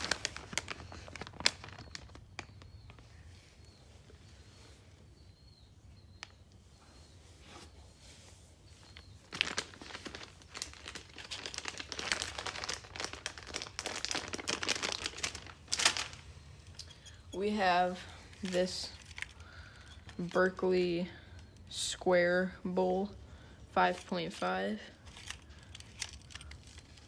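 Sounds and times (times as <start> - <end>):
plastic packaging crinkling: 0.0 - 3.0, 8.8 - 20.6, 23.9 - 27.0.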